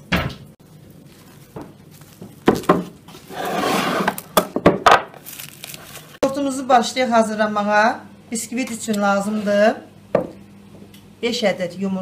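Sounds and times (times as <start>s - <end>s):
cling film crinkling: 0.6s - 3.3s, 5.1s - 6.2s.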